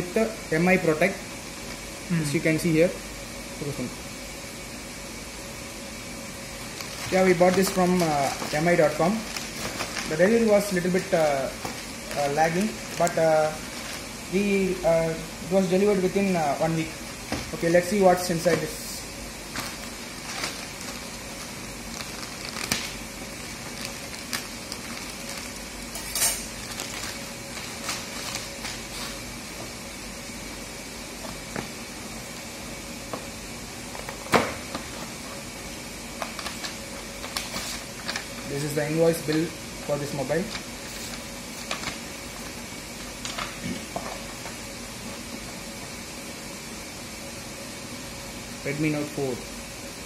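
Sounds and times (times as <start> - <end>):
room hiss: 0.0 - 50.0
plastic bag crinkling: 6.7 - 11.0, 11.6 - 14.1, 19.5 - 25.7, 26.5 - 29.1
paper packaging rustling: 6.7 - 14.2, 19.5 - 25.7, 26.5 - 29.3, 40.3 - 44.3
sharp plastic crackles: 9.2 - 10.2, 19.5 - 25.6, 26.5 - 28.8.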